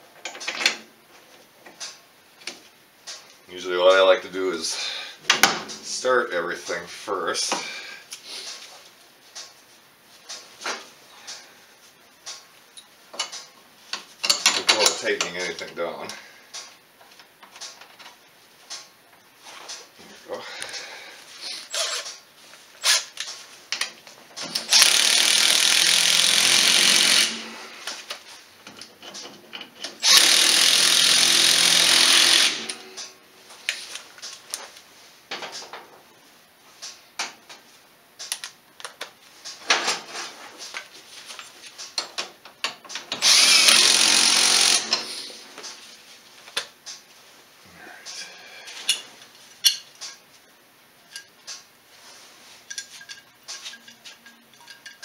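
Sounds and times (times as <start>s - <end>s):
metal parts and tools clinking: 14.2s - 15.7s, 51.1s - 51.6s, 52.6s - 55.0s
power driver running bolts: 24.5s - 27.5s, 29.9s - 33.1s, 43.1s - 45.3s.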